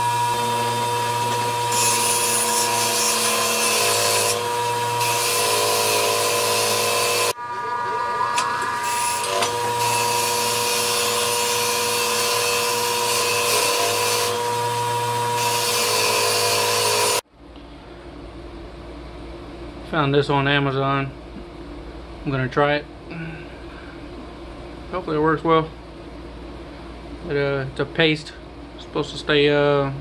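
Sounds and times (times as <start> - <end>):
bench grinder grinding metal: 0.0 - 17.2.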